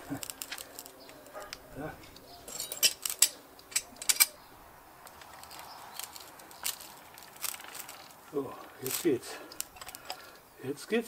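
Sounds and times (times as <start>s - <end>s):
plastic parts clicking: 5.0s - 8.2s.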